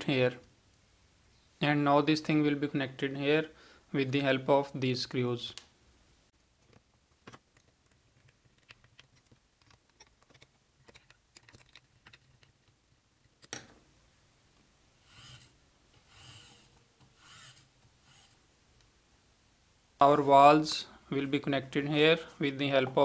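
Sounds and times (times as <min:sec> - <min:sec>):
small screws clicking: 0:07.2 - 0:13.6
short scraping sounds: 0:15.0 - 0:18.4.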